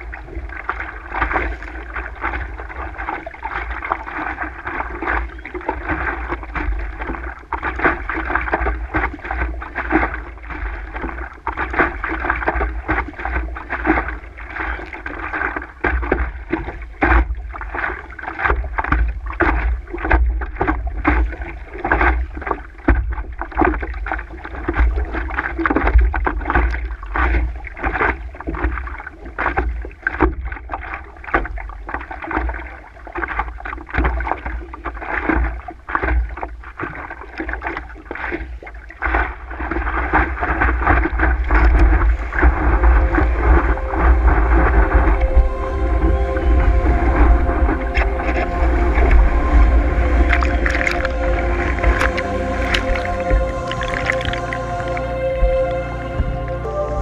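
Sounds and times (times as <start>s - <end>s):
low rumble: 0.0s - 26.6s, 39.2s - 57.0s
water splashing against board: 0.0s - 56.6s.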